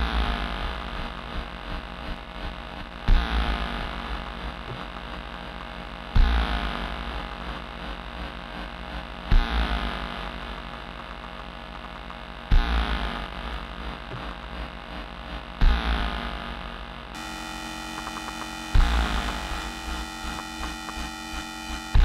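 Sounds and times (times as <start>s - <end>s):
steady low hum: 0.0s - 22.0s
deep synthesizer thump: 17.2s - 22.0s
falling synth sweeps: 17.2s - 22.0s.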